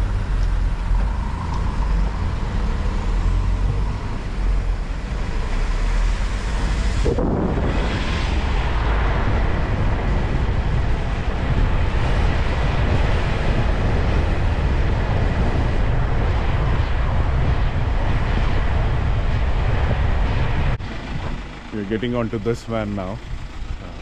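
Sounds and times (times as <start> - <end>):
vehicle road and engine noise: 0.0 - 24.0
wind buffeting microphone: 0.0 - 24.0.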